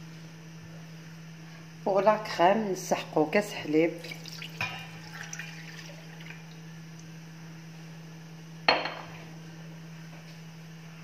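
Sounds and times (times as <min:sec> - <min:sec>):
steady low hum: 0:00.0 - 0:11.0
milk pouring into saucepan: 0:04.0 - 0:06.7.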